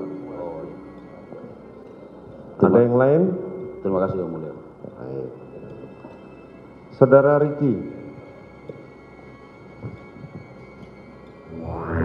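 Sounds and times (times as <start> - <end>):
background music: 0.0 - 12.0.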